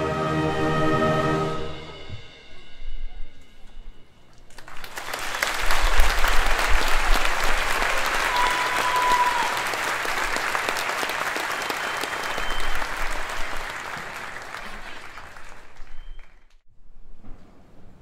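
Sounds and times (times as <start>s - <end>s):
audience applauding: 4.4s - 16.6s
held whistle: 11.3s - 13.1s, 15.8s - 16.5s.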